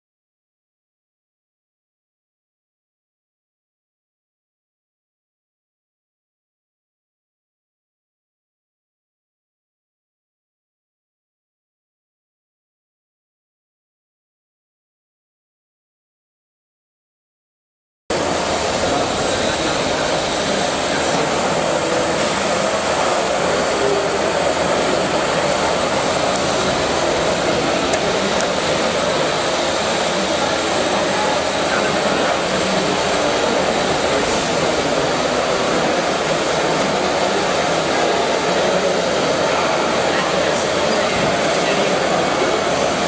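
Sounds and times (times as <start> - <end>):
steam rushing hiss: 18.1 - 43.0.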